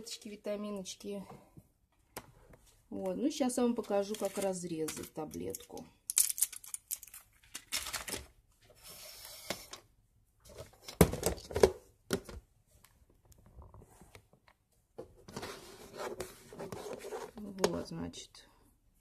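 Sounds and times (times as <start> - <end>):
plastic pill containers rattling: 4.1 - 8.3.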